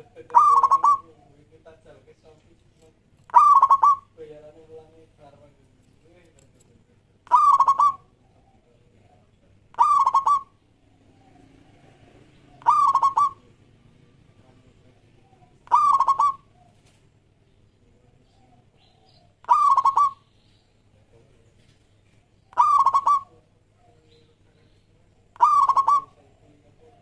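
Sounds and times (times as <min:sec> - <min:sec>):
dove cooing: 0:00.0 - 0:01.4, 0:03.3 - 0:04.2, 0:07.2 - 0:13.8, 0:14.4 - 0:17.0, 0:17.9 - 0:20.3, 0:22.4 - 0:27.0.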